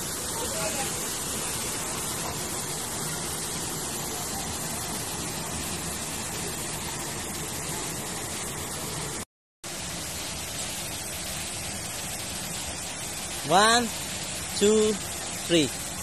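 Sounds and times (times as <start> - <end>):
waterfall pouring into pool: 0.0 - 16.0.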